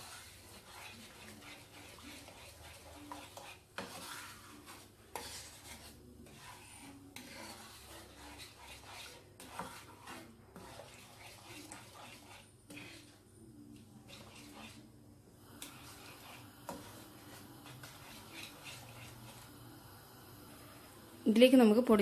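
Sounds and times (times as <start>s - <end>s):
wooden spoon scraping pan: 0.0s - 19.7s.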